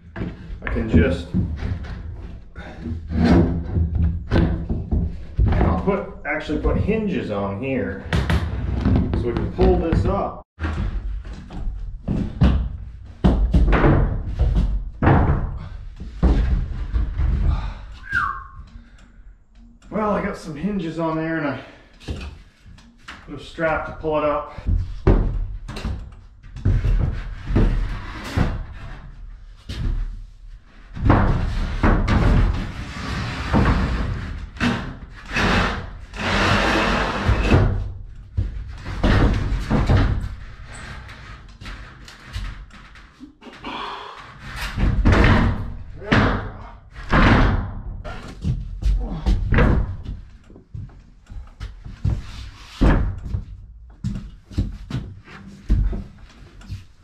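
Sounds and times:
wooden knocks and thumps: 0:00.0 - 0:06.1, 0:08.0 - 0:18.9, 0:23.8 - 0:30.2, 0:30.8 - 0:43.2, 0:44.4 - 0:57.0
plywood scraping: 0:00.0 - 0:19.0, 0:20.0 - 0:47.2
wood scraping on wood: 0:30.8 - 0:37.8.

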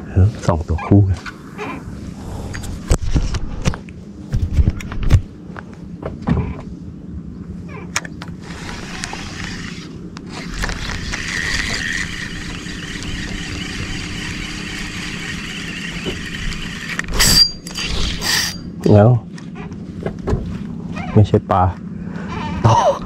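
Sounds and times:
boat motor humming: 0:05.3 - 0:23.0.

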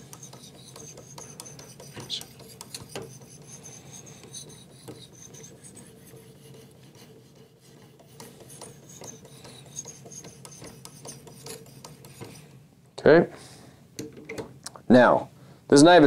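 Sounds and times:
hone scraping knife edge: 0:00.0 - 0:12.6.

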